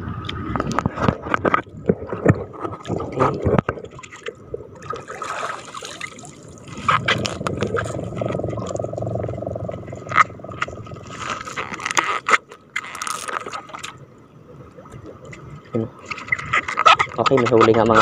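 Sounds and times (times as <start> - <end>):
water dripping and splashing: 0.7 - 9.0.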